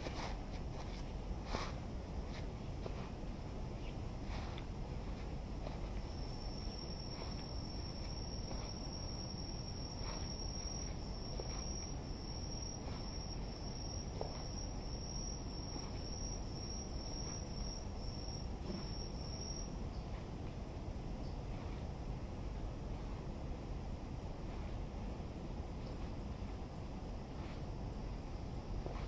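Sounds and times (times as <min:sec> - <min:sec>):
low background rumble: 0:00.0 - 0:29.0
insect trilling: 0:05.9 - 0:19.8.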